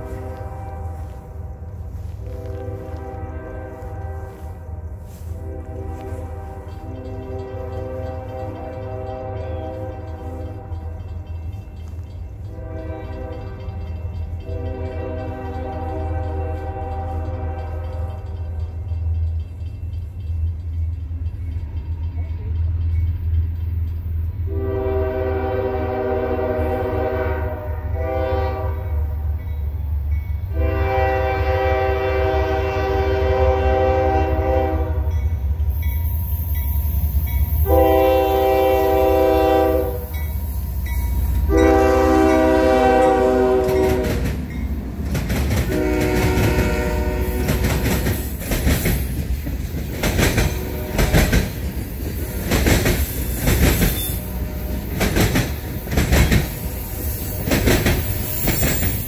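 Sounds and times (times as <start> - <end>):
train air horn blasts: 0.0 - 11.6, 12.4 - 18.9, 24.4 - 29.4, 30.5 - 35.4, 37.6 - 44.5, 45.5 - 48.4, 50.2 - 59.0
locomotive engine rumble: 0.0 - 59.0
train wheels clattering on rails: 0.0 - 59.0.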